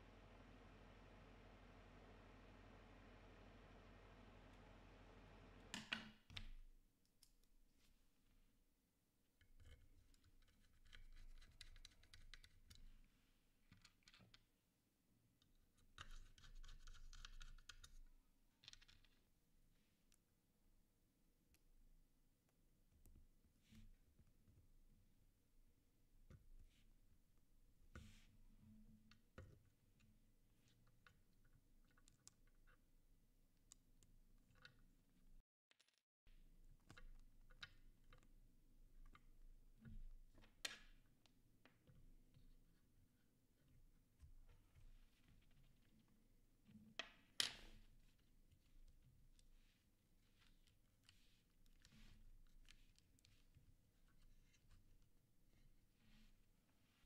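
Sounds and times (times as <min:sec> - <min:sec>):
small clicks and taps of keyboard parts: 0:09.4 - 0:12.9, 0:13.7 - 0:14.5, 0:15.4 - 0:19.2, 0:30.8 - 0:32.9, 0:36.6 - 0:42.4.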